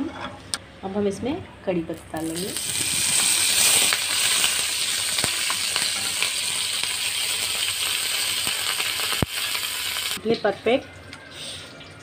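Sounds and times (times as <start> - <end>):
leaves sizzling in hot oil: 2.0 - 10.2.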